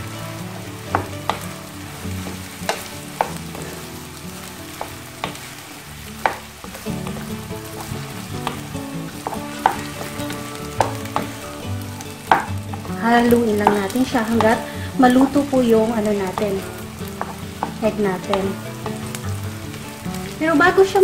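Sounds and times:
rice sizzling in frying pan: 0:00.0 - 0:21.0
wooden spatula stirring rice: 0:00.0 - 0:21.0
spatula knocking against pan: 0:00.9 - 0:01.6, 0:02.2 - 0:03.4, 0:04.7 - 0:05.5, 0:06.2 - 0:11.4, 0:12.2 - 0:14.6, 0:16.2 - 0:19.2.

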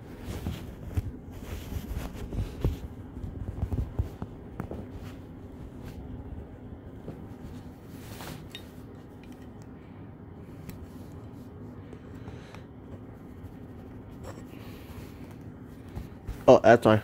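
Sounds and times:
faint metal clicks and scrapes: 0:08.4 - 0:09.7.

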